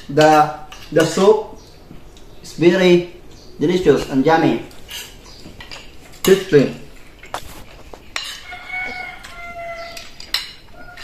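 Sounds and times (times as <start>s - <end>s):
cutlery clinking on plates: 0.0s - 1.2s, 4.7s - 11.0s.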